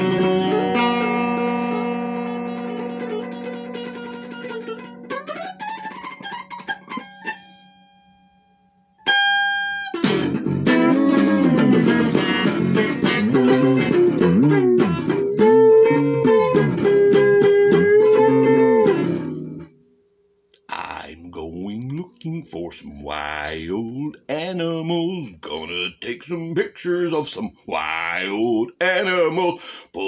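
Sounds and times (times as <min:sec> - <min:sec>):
electric guitar blues solo: 0:00.0 - 0:08.3, 0:09.0 - 0:19.7.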